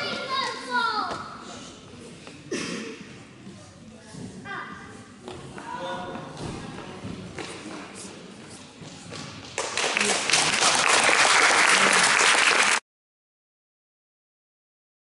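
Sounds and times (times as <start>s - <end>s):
low hall noise: 0.0s - 12.8s
audience applauding: 9.6s - 12.8s.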